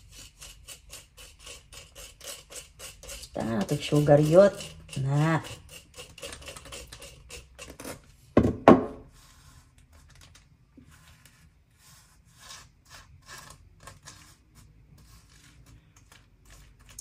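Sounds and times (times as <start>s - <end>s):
knife scraping across bread: 0.0s - 8.0s, 9.0s - 10.2s, 10.8s - 17.0s
jar knocking on counter: 8.4s - 9.0s.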